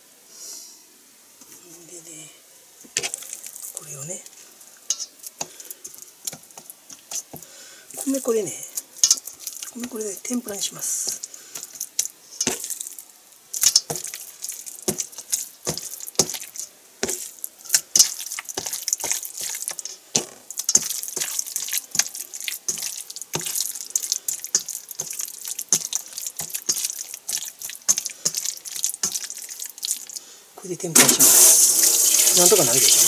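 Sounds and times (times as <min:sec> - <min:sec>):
steady high hiss: 0:00.0 - 0:33.0
wet clicks and slaps: 0:08.0 - 0:10.0, 0:11.1 - 0:30.2.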